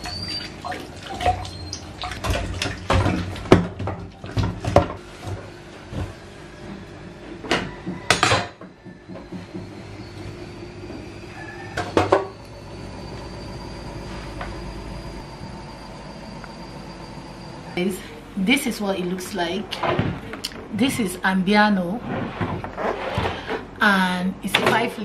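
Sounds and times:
dishes clattering in sink: 0.0 - 5.0.

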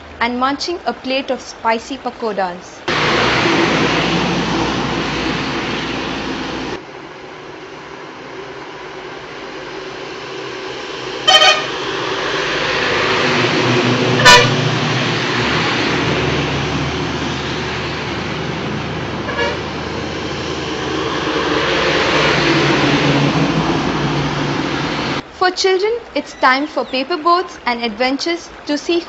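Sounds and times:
truck engine rumble: 0.0 - 29.0
truck tyres hissing on wet road: 2.9 - 25.2
vehicle horn toots: 11.2 - 11.8, 14.2 - 14.6, 19.3 - 19.7.

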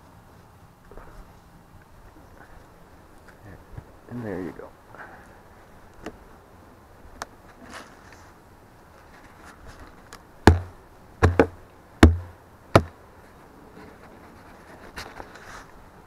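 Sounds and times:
hand knocking on wood: 10.5 - 12.9.

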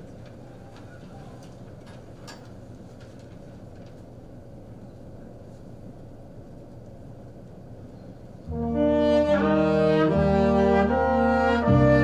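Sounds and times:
faint clicks and rustles: 0.0 - 8.4
steady low hum: 0.0 - 12.0.

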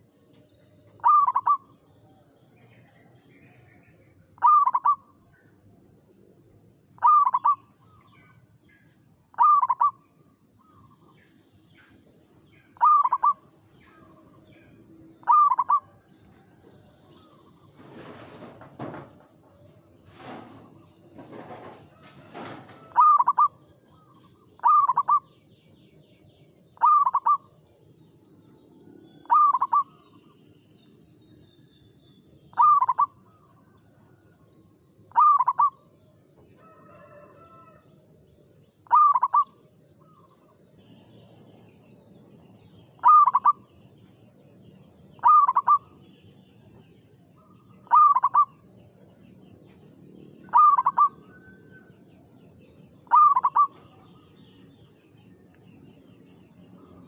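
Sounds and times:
small birds chirping: 0.0 - 19.9, 22.8 - 57.0
dove cooing: 0.9 - 1.8, 4.4 - 5.0, 7.0 - 7.7, 9.3 - 10.0, 12.7 - 14.2, 15.1 - 16.0, 21.6 - 25.3, 26.8 - 27.5, 29.2 - 30.0, 32.5 - 33.2, 35.1 - 35.8, 38.8 - 40.2, 43.0 - 43.7, 45.2 - 46.0, 47.4 - 48.6, 50.4 - 51.5, 53.0 - 54.2.

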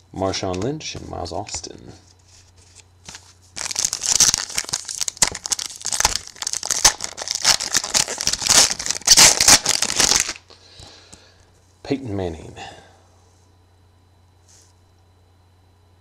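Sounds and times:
foil wrapper crinkling and tearing: 2.6 - 10.4.

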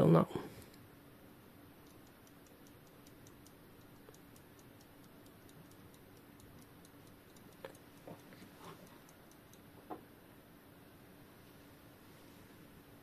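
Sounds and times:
clock ticking fast: 1.8 - 9.7.

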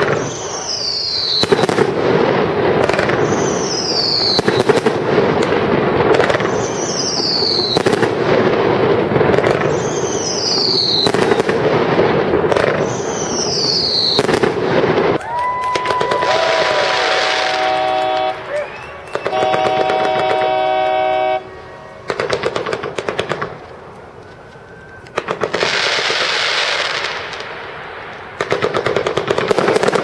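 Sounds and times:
fireworks bangs and crackles: 0.0 - 21.3, 22.0 - 24.0, 24.8 - 30.0
high falling whistle: 15.3 - 22.2.

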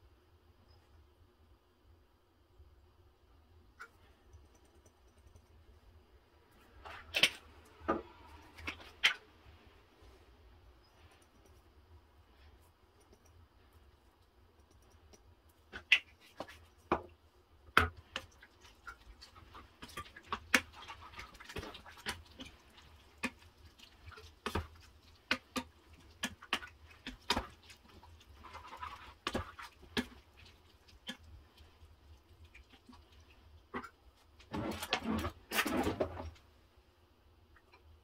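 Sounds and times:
low steady hum: 0.0 - 38.0
wooden spoon scraping saucepan: 28.3 - 30.2.

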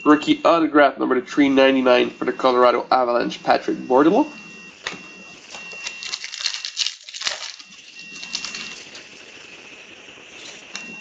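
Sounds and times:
foil wrappers crackling: 5.5 - 9.3.

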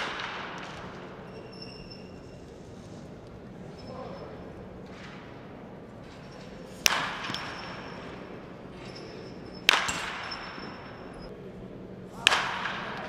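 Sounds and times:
baseball bat cracking ball: 0.0 - 1.1, 6.8 - 7.7, 9.7 - 10.3, 12.2 - 13.0.

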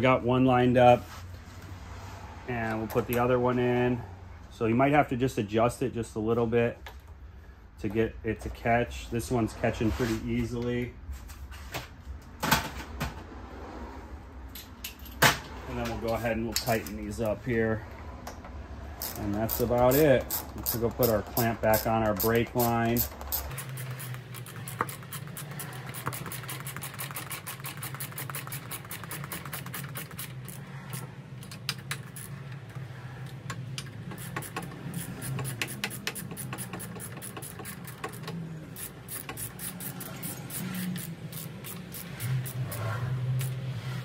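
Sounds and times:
hand ratchet clicking: 19.0 - 43.6.

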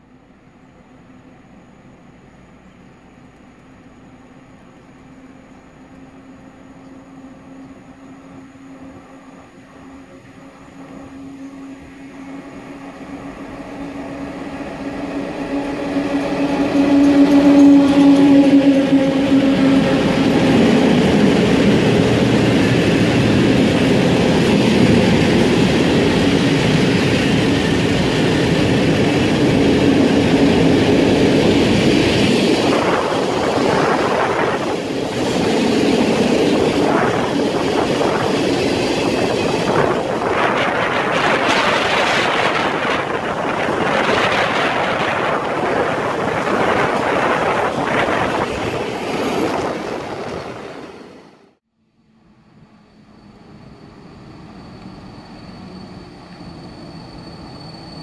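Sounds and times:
freight train wheels rumbling on rails: 0.0 - 51.6.

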